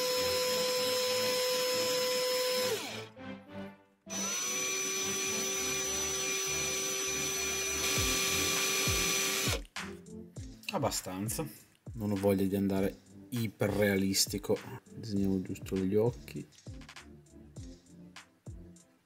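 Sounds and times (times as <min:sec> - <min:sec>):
cordless drill motor running: 0:00.0 - 0:03.1, 0:04.1 - 0:09.6.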